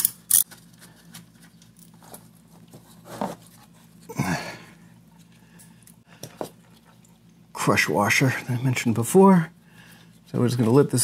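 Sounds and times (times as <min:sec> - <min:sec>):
person grunting: 0:04.1 - 0:04.7.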